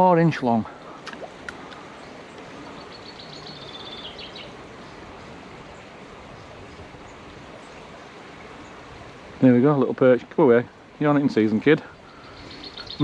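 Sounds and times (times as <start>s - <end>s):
stream water flowing: 0.0s - 13.0s
bird trilling: 2.6s - 4.6s, 12.1s - 13.0s.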